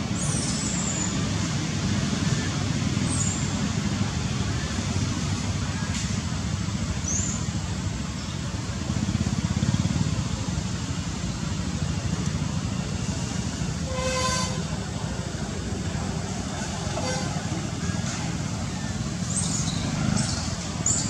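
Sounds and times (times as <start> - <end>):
road traffic rumble: 0.0 - 21.0
vehicle horn toot: 13.8 - 14.7, 17.0 - 17.5.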